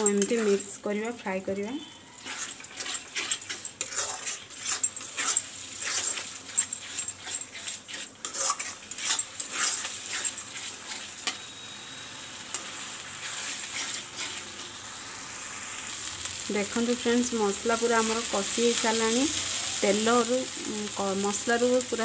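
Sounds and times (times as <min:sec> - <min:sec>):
spatula scraping a pan: 0:00.0 - 0:00.7, 0:01.9 - 0:11.5, 0:12.5 - 0:14.6
sizzling in oil: 0:00.0 - 0:22.0.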